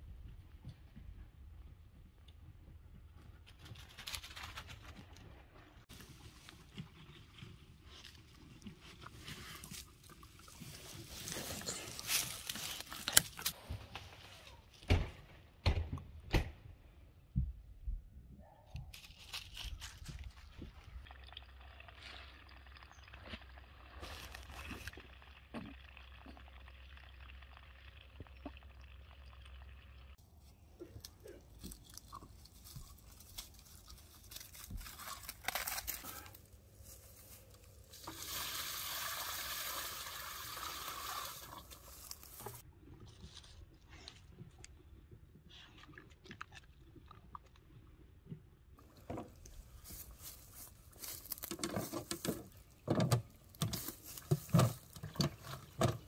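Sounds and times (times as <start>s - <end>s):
footsteps crunching in dry leaves: 11.0s - 13.6s, 32.4s - 38.0s, 49.6s - 51.5s.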